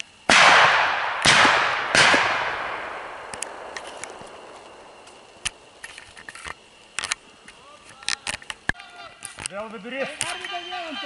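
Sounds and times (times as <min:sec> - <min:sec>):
echoing shotgun shots: 0:00.3 - 0:05.8.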